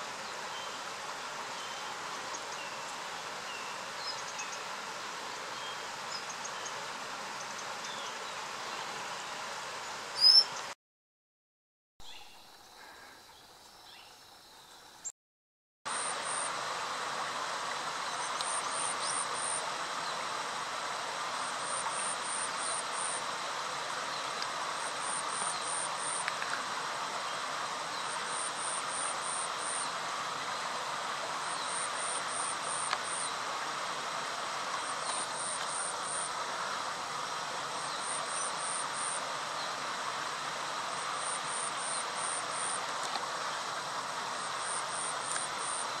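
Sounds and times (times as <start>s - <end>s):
insect hiss: 0.0s - 10.8s, 12.0s - 15.1s, 15.9s - 46.0s
high-pitched pulsing insect call: 15.9s - 16.7s, 18.0s - 20.5s, 21.2s - 23.6s, 24.2s - 26.4s, 27.3s - 30.0s, 31.4s - 33.4s, 34.7s - 36.7s, 37.7s - 39.7s, 40.3s - 42.9s, 44.3s - 46.0s.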